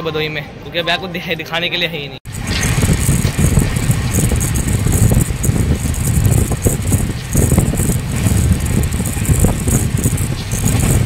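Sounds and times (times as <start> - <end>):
coach rattling and clattering: 2.3 - 11.0
train wheels rumbling on rails: 2.3 - 11.0.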